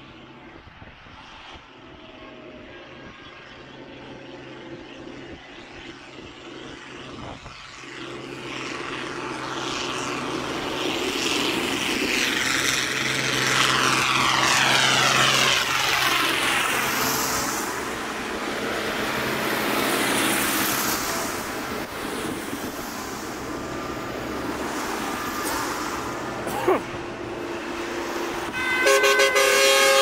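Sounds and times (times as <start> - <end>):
tractor diesel engines droning: 0.0 - 30.0
tyres on wet road: 7.7 - 30.0.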